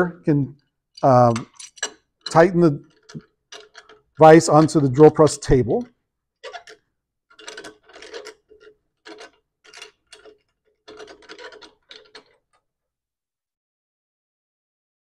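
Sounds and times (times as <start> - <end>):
clamp screw metallic scrapes: 6.4 - 12.6.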